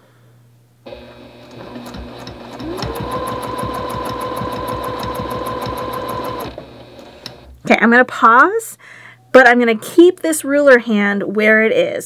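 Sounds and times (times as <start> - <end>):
sewing machine stitching: 1.4 - 7.5.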